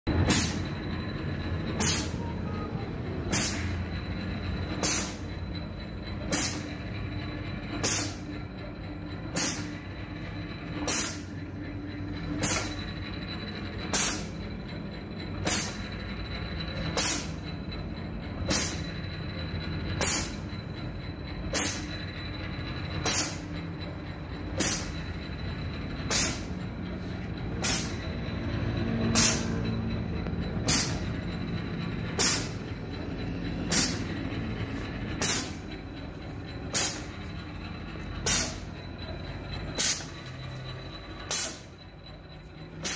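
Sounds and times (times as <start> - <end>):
pneumatic air exhaust hiss: 0.1 - 0.8, 1.6 - 4.0, 4.7 - 6.8, 7.7 - 8.4, 9.3 - 10.0, 10.8 - 11.4, 12.4 - 12.9, 13.8 - 14.4, 15.4 - 16.0, 16.7 - 17.5, 18.4 - 19.0, 19.9 - 20.7, 21.4 - 22.0, 22.9 - 25.2, 26.0 - 29.9, 30.5 - 32.7, 33.4 - 35.7, 36.6 - 37.4, 38.2 - 40.6, 41.2 - 41.8
machine motor hum: 0.1 - 42.9.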